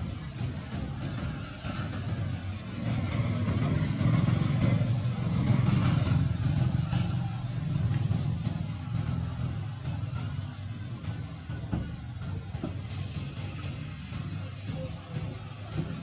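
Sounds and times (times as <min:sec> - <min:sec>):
vehicle engine passing by: 0:00.9 - 0:10.6.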